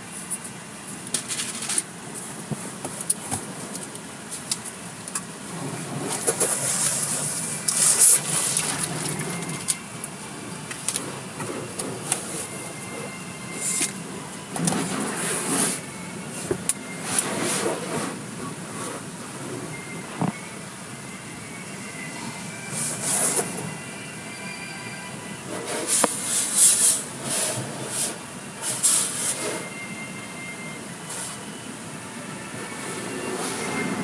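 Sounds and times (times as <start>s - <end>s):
water spraying on car: 0.0s - 21.8s, 22.6s - 23.8s, 25.4s - 29.8s.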